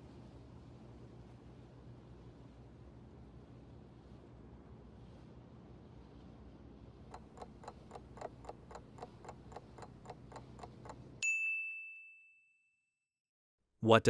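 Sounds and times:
countdown clock ticking: 7.1 - 11.1
bright ding: 11.2 - 12.8.

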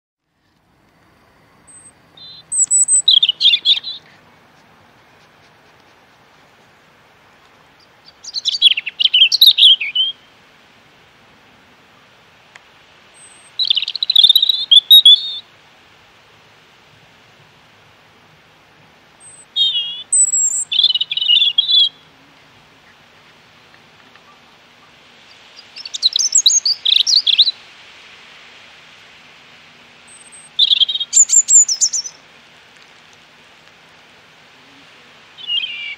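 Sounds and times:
robin chirping: 1.2 - 4.6, 7.6 - 10.3, 13.1 - 15.5, 19.2 - 22.1, 24.1 - 27.6, 30.1 - 32.2, 35.4 - 35.9.

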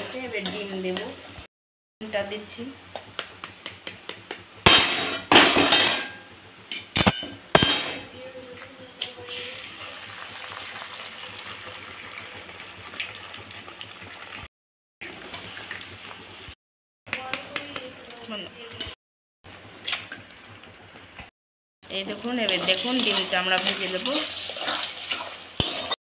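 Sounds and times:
hot oil sizzling: 0.0 - 1.5, 9.0 - 16.6, 19.5 - 26.0.

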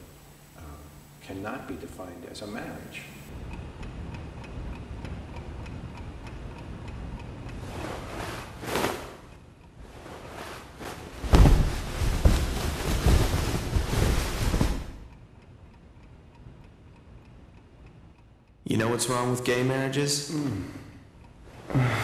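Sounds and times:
bedclothes rustling: 7.6 - 15.1.

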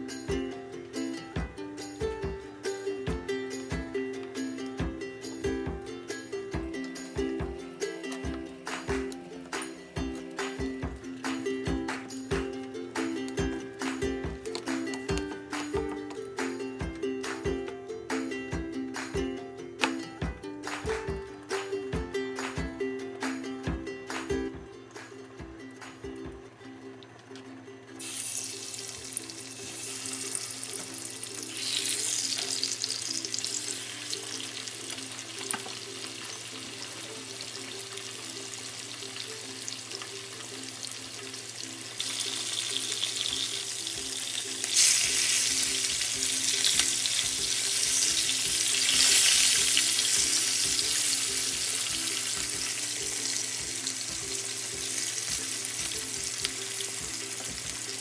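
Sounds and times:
fish sizzling in hot oil: 28.0 - 58.0.

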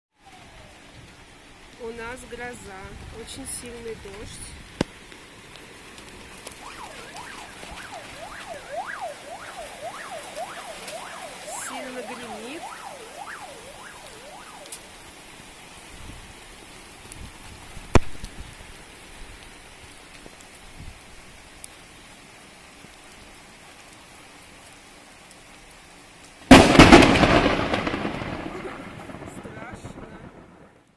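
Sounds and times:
heavy rain falling: 0.1 - 30.9
thunderclap rumbling: 1.9 - 19.4, 26.5 - 30.9.

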